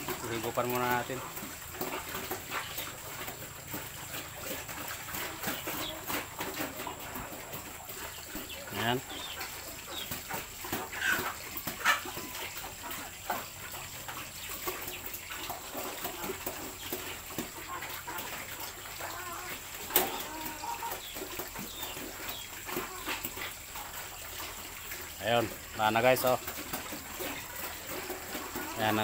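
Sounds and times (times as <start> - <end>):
pig calls: 19.0 - 21.1.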